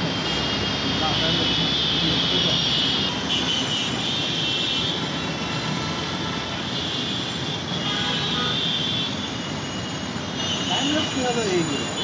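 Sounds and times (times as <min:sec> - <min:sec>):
city traffic noise: 0:00.0 - 0:12.0.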